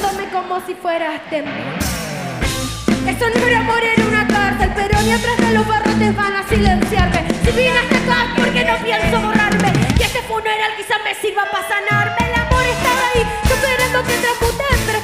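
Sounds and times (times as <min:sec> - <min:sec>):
live band with singing: 0:01.3 - 0:15.0
drum strikes: 0:01.7 - 0:06.0.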